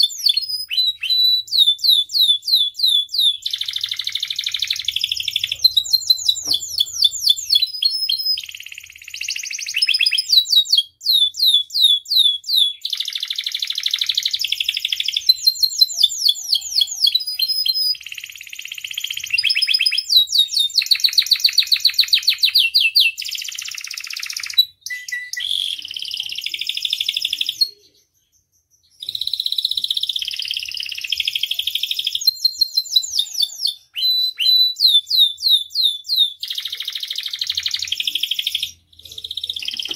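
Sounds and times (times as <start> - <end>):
canary singing trills: 0.0 - 39.9.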